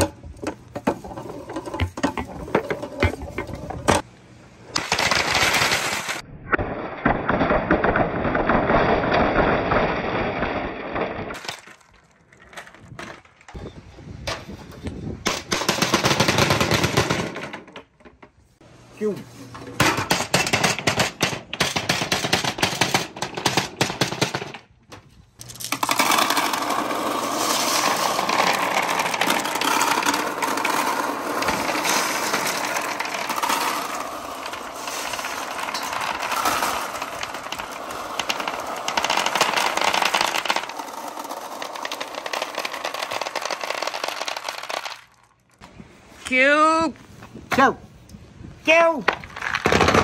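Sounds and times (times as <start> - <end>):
pool balls clacking: 0.0 - 4.1, 25.4 - 45.6
glass marbles clattering down wood: 25.4 - 45.4.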